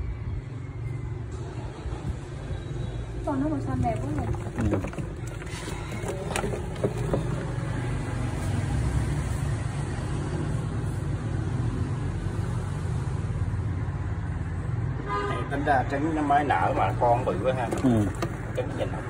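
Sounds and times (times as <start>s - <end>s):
vehicle engine rumbling: 3.0s - 11.3s, 16.5s - 19.0s.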